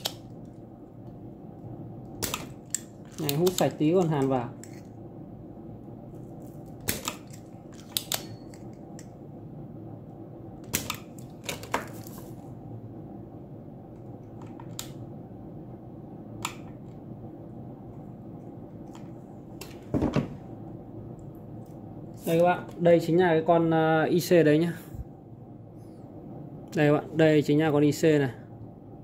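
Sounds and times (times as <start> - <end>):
steady low hum: 0.0 - 29.0
desoldering pump snapping clicks: 6.8 - 9.1.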